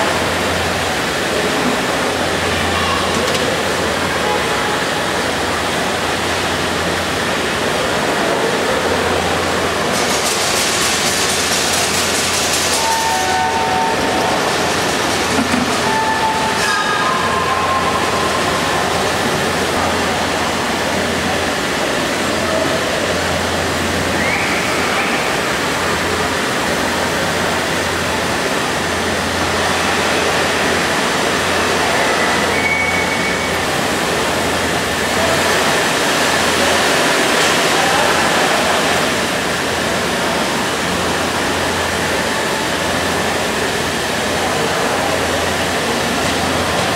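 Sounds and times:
crowd in large hall: 0.0 - 46.9
model trains running on track: 0.0 - 46.9
faint whistle-like tones: 24.1 - 25.3, 32.2 - 33.6.

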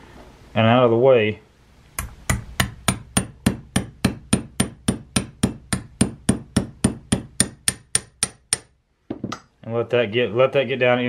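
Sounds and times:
hammer tapping metal pin: 2.0 - 9.5.

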